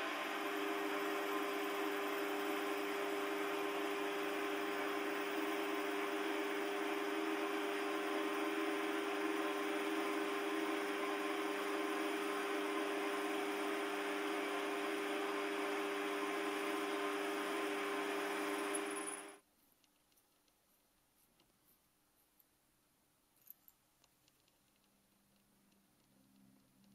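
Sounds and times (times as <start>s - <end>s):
metal lathe motor humming and whining: 0.0s - 19.4s.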